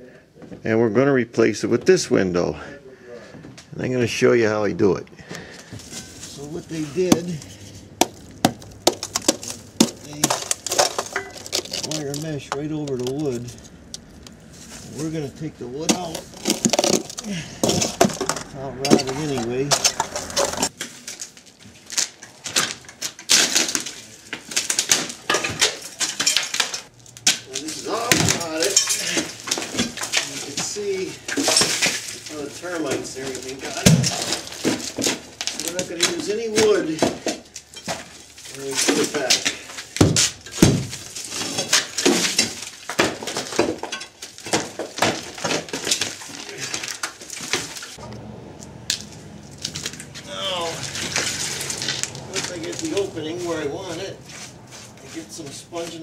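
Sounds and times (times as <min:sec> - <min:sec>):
hand tool scraping wood and mesh: 0:05.8 - 0:21.3, 0:21.9 - 0:48.0.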